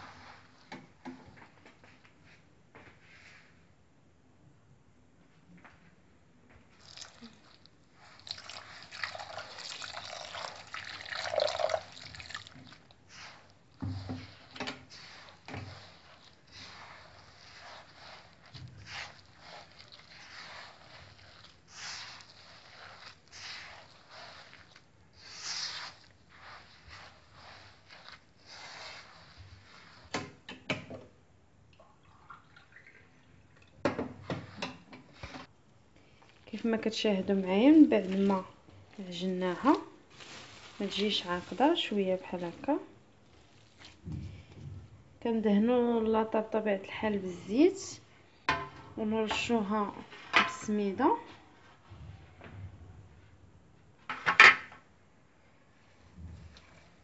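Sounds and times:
wet dough squishing in bowl: 6.7 - 30.5, 36.0 - 47.2.

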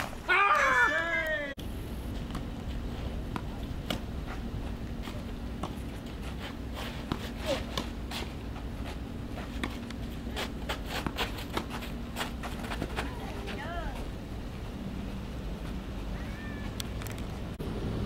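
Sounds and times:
tennis balls bouncing on court: 2.2 - 6.3
tennis balls struck by rackets: 3.3 - 13.6.

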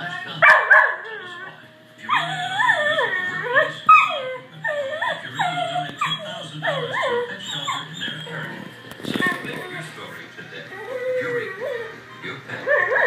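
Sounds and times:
dog whining and yipping: 0.9 - 8.6, 10.7 - 12.0, 12.6 - 13.0.

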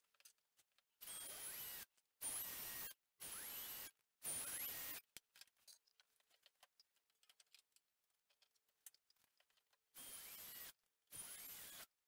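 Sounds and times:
cordless drill driving screw: 1.0 - 5.0, 10.0 - 11.9.

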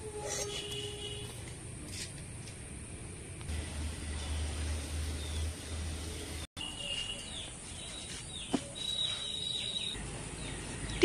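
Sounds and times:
small birds chirping: 5.1 - 11.0.

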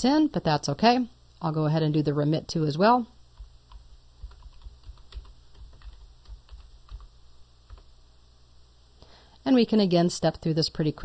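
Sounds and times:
typing on computer keyboard: 3.4 - 7.1, 7.7 - 7.9.

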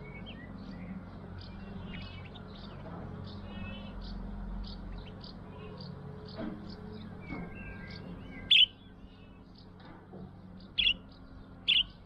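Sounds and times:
low background hum: 0.0 - 12.0
budgerigar chirping: 7.8 - 8.8, 10.7 - 12.0.

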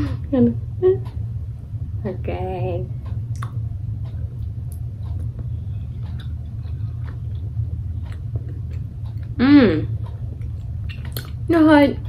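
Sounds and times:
steady low rumble: 0.0 - 12.0
mouth chewing with wet clicks: 3.2 - 11.5.

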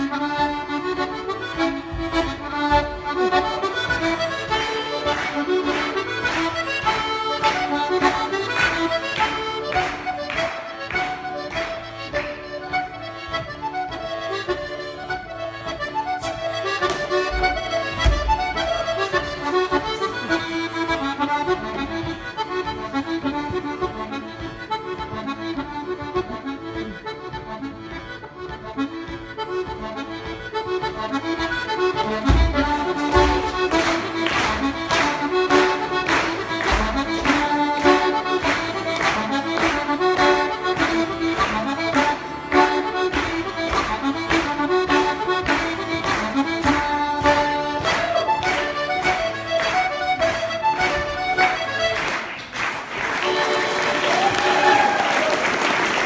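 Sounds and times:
accordion dance tune: 0.0 - 56.0
thumps on wooden stage floor: 1.6 - 4.6, 16.9 - 18.8, 32.0 - 33.7.

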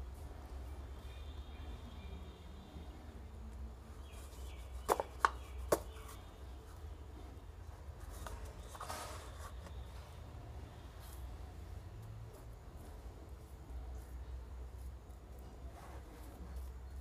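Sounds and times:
faint rustling: 4.0 - 10.2.

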